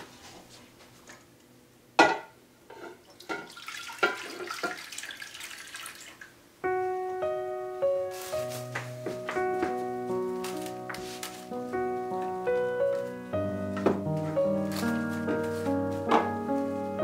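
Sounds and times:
broth pouring and splashing: 0:03.1 - 0:06.3
piano music: 0:06.6 - 0:17.0.

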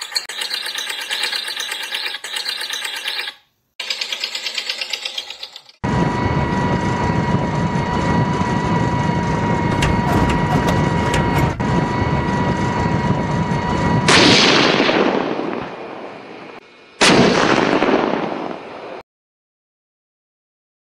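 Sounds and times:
toy tank whirring hum: 0:00.0 - 0:05.8.

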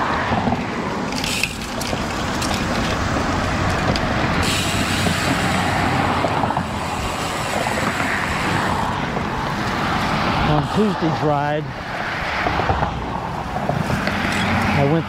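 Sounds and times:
road traffic passing: 0:00.0 - 0:15.0
sharp clicks and rattles: 0:00.4 - 0:05.4.

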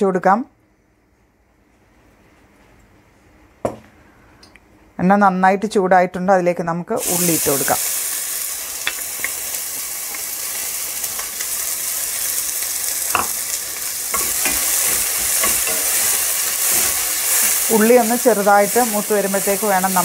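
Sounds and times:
onion sizzling in oil: 0:07.0 - 0:20.0
spatula knocking and scraping pan: 0:14.1 - 0:17.6.

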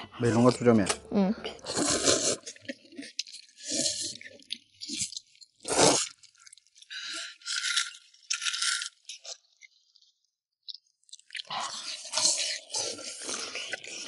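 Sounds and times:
chewing: 0:01.4 - 0:14.0
noodle slurping: 0:01.6 - 0:08.0, 0:11.4 - 0:14.0.

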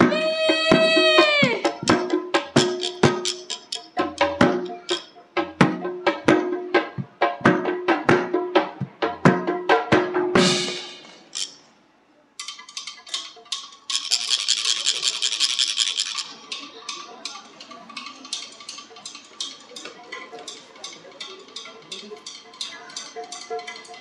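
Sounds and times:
percussion hit: 0:00.0 - 0:11.6
quick clicking and rattle: 0:12.4 - 0:17.1.

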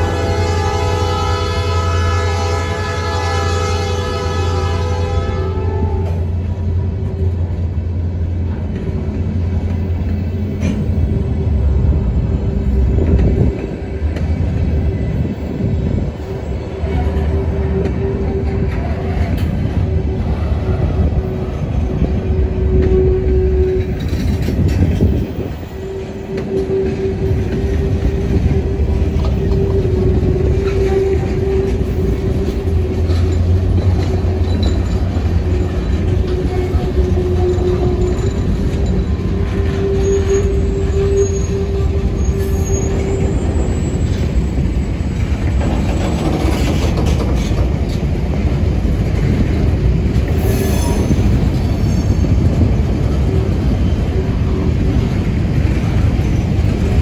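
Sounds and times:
train wheel squeal: 0:14.6 - 0:48.0, 0:49.4 - 0:57.0.

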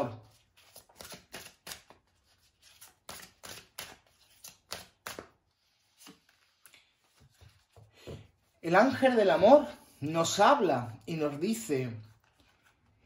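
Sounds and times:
cards being shuffled: 0:00.2 - 0:08.2, 0:12.1 - 0:13.0.

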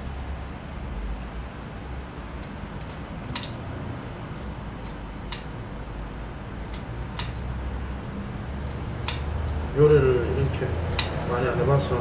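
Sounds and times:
scissors snipping: 0:02.4 - 0:03.6, 0:04.4 - 0:05.6, 0:06.6 - 0:07.5, 0:08.6 - 0:09.4, 0:10.9 - 0:11.3
scissor blades clicking: 0:02.8 - 0:03.6, 0:04.4 - 0:05.6, 0:06.7 - 0:07.5, 0:08.6 - 0:09.4, 0:10.9 - 0:11.3.

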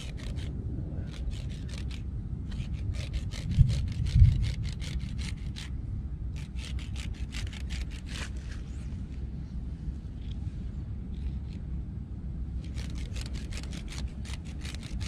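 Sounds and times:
low rumble: 0:00.0 - 0:15.0
fishing line scraping on concrete: 0:06.4 - 0:09.2.

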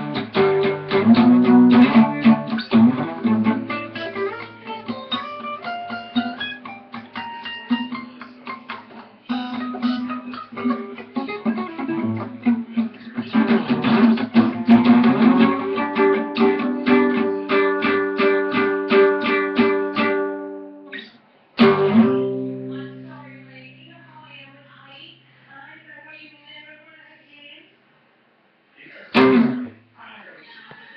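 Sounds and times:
guitar chord strummed: 0:00.0 - 0:21.0, 0:21.6 - 0:23.5, 0:29.1 - 0:29.8
acoustic guitar picked notes: 0:00.0 - 0:24.3, 0:29.1 - 0:29.9.

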